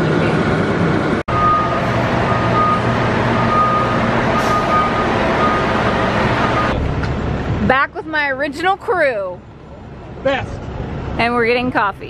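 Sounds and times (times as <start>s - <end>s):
diesel engine running: 0.0s - 12.0s
backup alarm beeping: 1.3s - 6.8s.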